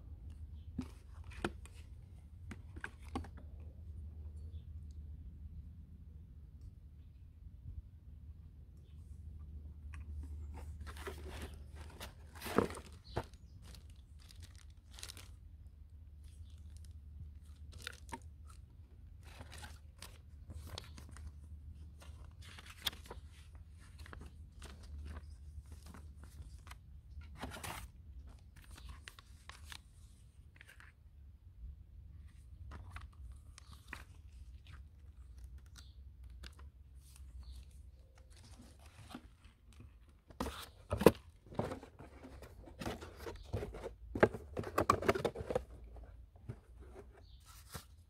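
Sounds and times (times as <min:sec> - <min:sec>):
paper rustling and crinkling: 0:10.2 - 0:15.5, 0:16.2 - 0:31.0, 0:32.2 - 0:48.0.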